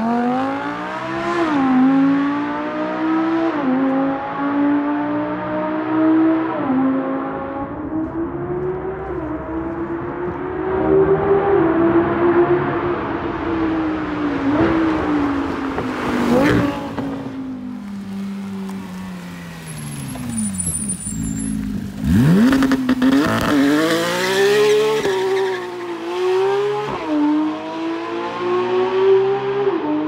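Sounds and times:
car engine revving and upshifting: 0:00.0 - 0:20.5, 0:21.3 - 0:30.0
engines echoing in a tunnel: 0:04.1 - 0:17.7.

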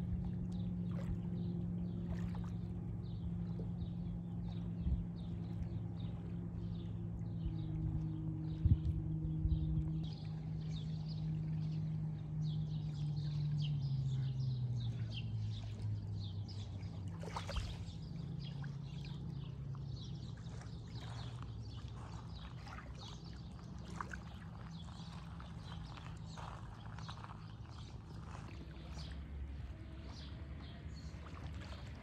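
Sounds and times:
motor engine drone: 0:00.0 - 0:32.0
small birds chirping: 0:09.5 - 0:32.0.

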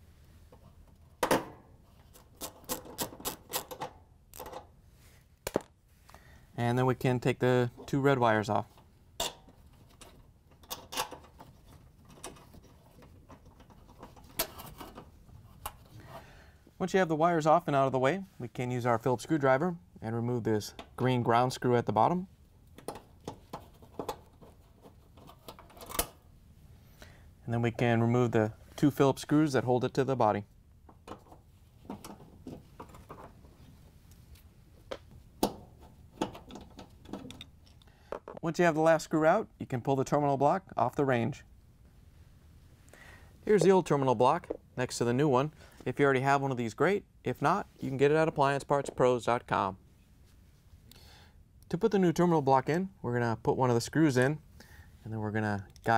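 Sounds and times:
faint metallic clicks and scrapes: 0:08.6 - 0:16.2, 0:22.7 - 0:26.2, 0:30.9 - 0:38.4.

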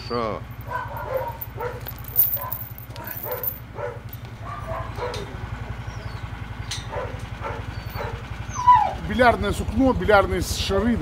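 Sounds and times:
engine idling: 0:00.0 - 0:11.0
dogs whining and yipping: 0:00.7 - 0:06.2, 0:06.8 - 0:09.0.

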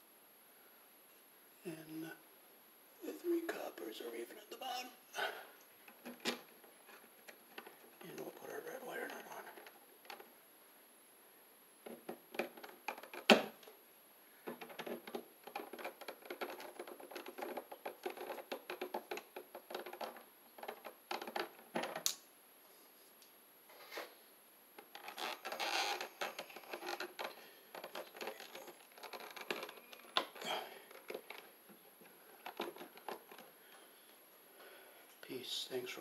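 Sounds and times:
stiff wires scraping and rustling: 0:24.8 - 0:34.1.

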